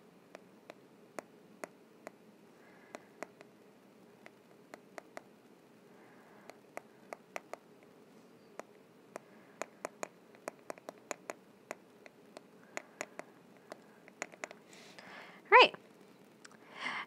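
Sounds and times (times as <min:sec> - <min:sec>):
faint steady hum: 0:00.0 - 0:17.0
stylus tapping on glass screen: 0:08.6 - 0:14.6.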